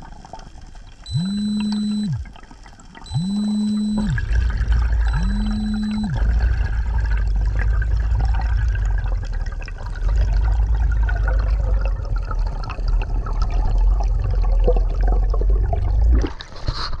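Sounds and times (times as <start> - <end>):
faint bubbling: 0.0 - 17.0
low underwater rumble: 3.2 - 16.4.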